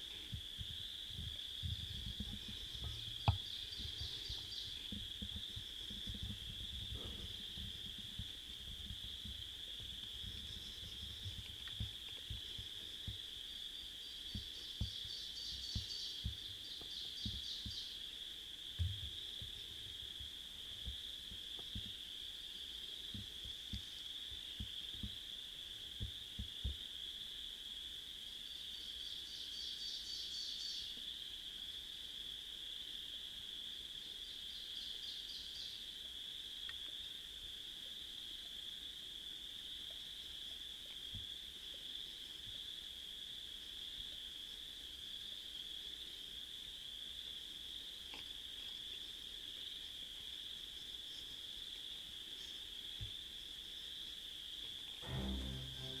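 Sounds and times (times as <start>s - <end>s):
low soft thumps: 0.2s - 13.3s.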